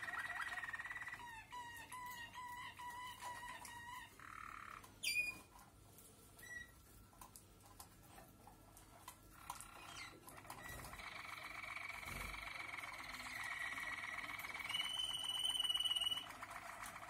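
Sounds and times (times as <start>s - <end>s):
canary rolled song: 0.0s - 5.5s, 9.3s - 17.0s
faint canary chirps: 0.0s - 5.6s, 6.4s - 6.9s, 9.3s - 17.0s.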